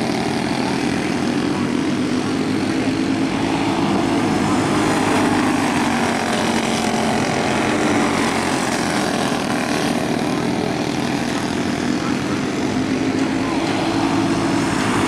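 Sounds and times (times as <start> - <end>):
kart engines buzzing: 0.0 - 15.0.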